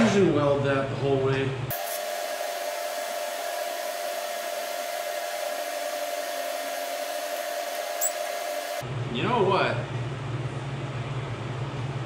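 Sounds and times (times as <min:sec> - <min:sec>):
welding arc hissing: 0:01.7 - 0:08.8.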